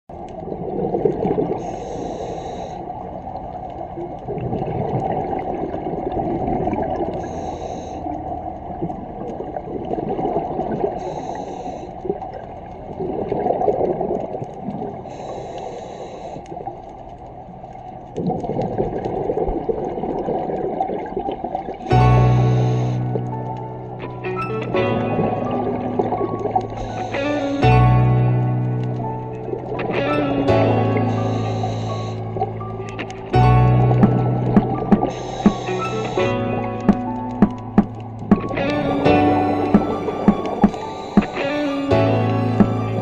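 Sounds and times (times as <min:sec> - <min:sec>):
gurgling exhaled bubbles: 0:00.1 - 0:07.7, 0:08.4 - 0:15.3, 0:18.1 - 0:43.0
regulator hissing inhales: 0:01.6 - 0:02.9, 0:07.2 - 0:08.2, 0:11.0 - 0:12.0, 0:15.1 - 0:16.4, 0:31.1 - 0:32.4, 0:35.1 - 0:36.3.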